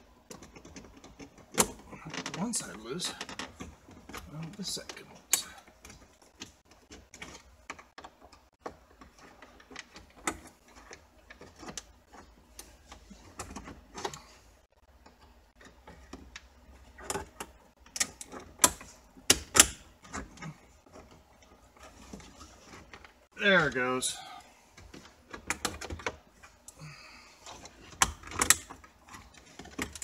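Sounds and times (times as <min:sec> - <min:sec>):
plastic clicks and rattles: 0:27.4 - 0:30.0.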